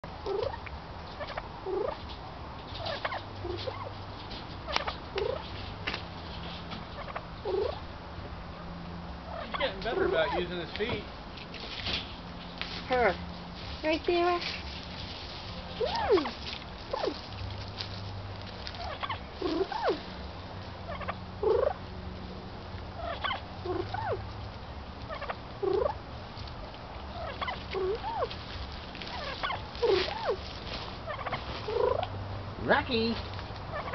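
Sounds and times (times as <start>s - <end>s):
turkey hen calling: 0.2s - 2.0s, 2.8s - 4.0s, 4.6s - 5.5s, 6.8s - 7.9s, 8.6s - 10.8s, 15.7s - 17.3s, 18.6s - 20.1s, 20.8s - 21.9s, 22.9s - 24.3s, 25.0s - 26.0s, 27.0s - 28.4s, 29.0s - 30.4s, 31.0s - 32.2s, 32.9s - 33.9s.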